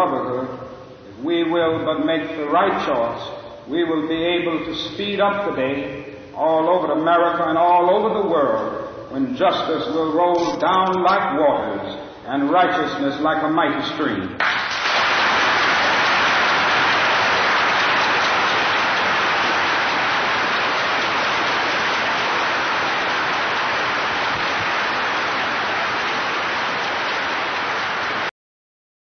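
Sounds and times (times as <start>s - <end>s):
audience applauding: 14.4s - 28.3s.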